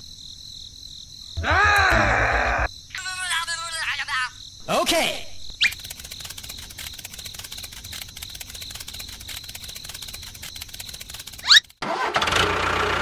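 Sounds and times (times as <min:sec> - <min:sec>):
crickets chirping: 0:00.0 - 0:11.8.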